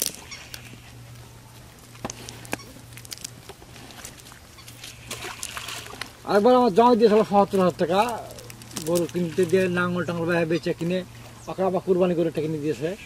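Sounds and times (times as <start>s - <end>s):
steady low hum: 0.0s - 13.0s
fish flapping in net: 2.4s - 6.2s
cast net tapping and rustling: 7.1s - 10.2s.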